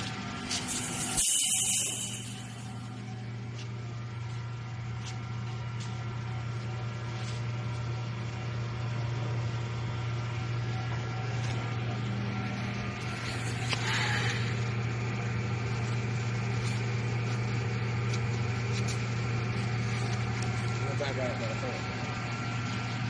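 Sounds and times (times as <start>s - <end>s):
factory machine hum: 0.0s - 23.0s
brief hiss: 0.7s - 2.6s.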